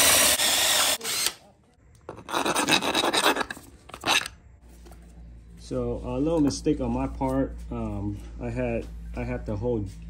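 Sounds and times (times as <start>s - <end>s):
cordless drill boring metal: 0.0s - 1.4s.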